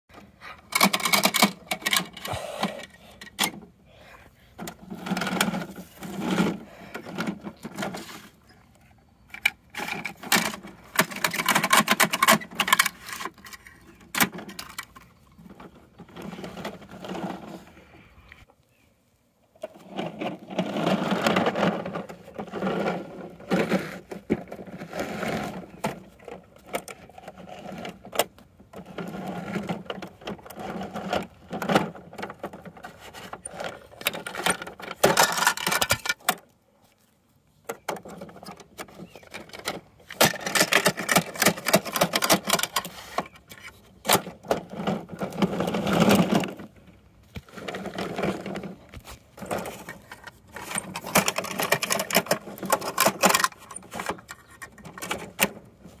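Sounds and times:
plastic toys clicking and rattling: 0.1 - 3.7, 9.3 - 17.4, 20.1 - 36.5, 37.7 - 46.8, 49.4 - 56.0.

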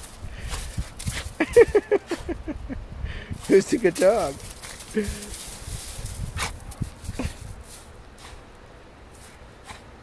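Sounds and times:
dog rolling in snow: 3.4 - 8.4.

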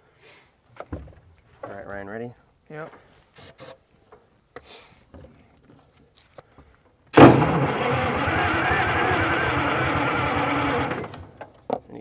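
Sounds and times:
starter motor whine: 7.2 - 11.4
diesel engine cranking: 7.2 - 11.5.

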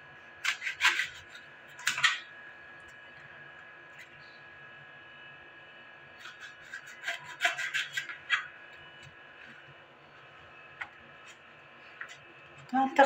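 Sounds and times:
knife cutting eggplant: 0.4 - 2.2, 6.2 - 8.5.

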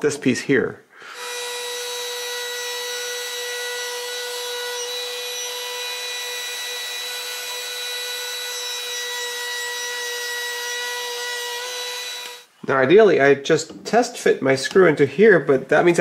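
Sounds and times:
router high whine: 1.2 - 12.4.

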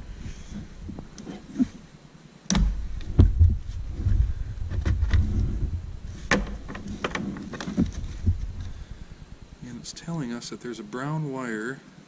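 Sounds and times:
low rumble: 2.6 - 6.9, 7.8 - 9.9
wires rustling: 2.6 - 10.1.

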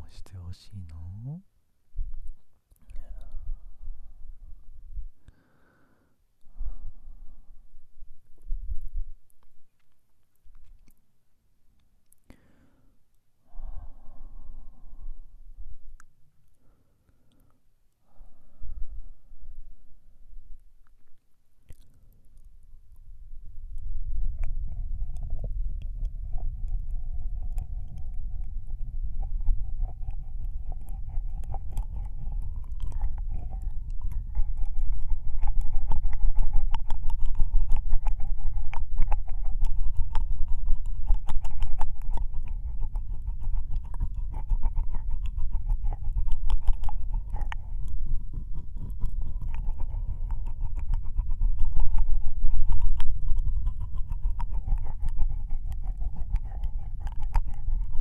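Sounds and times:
wet mouth clicks and smacks: 2.2 - 3.4, 8.4 - 11.1, 11.8 - 12.4, 20.8 - 22.7, 23.8 - 58.0
steady low rumble: 3.0 - 5.3, 22.2 - 58.0.

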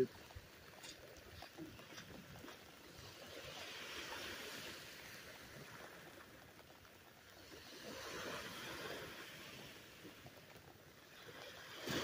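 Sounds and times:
faint surf on sandy beach: 0.0 - 12.0.

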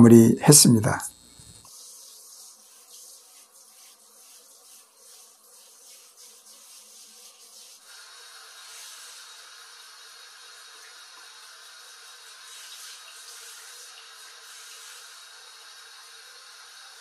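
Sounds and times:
high pulsing hiss: 0.0 - 1.7.

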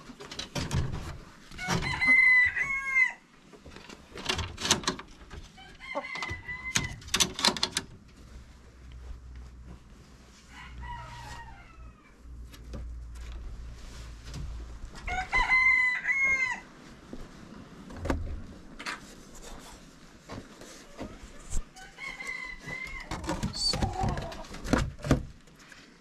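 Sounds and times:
rooster crowing: 1.6 - 3.2, 5.6 - 7.0, 10.5 - 12.2, 15.0 - 16.7, 21.8 - 23.1.

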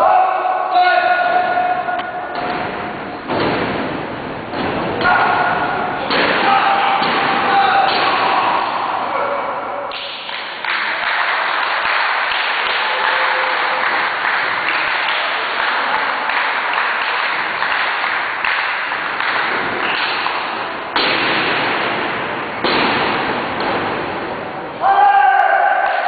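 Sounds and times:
crowd applauding: 9.9 - 20.5.

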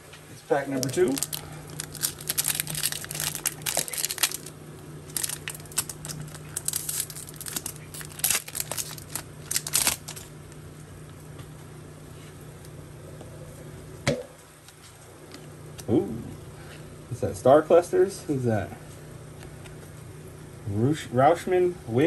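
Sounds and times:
foil wrapper tearing and crinkling: 0.8 - 10.3.

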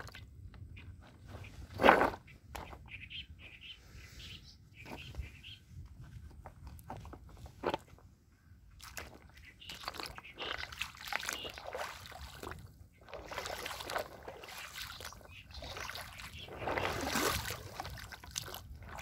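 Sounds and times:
river water trickling over stones: 8.7 - 19.0.

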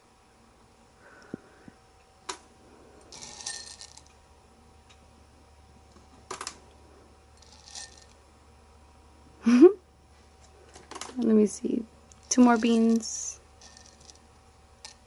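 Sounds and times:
coffee beans clicking against glass: 3.1 - 4.1, 7.4 - 8.1, 12.1 - 14.2.

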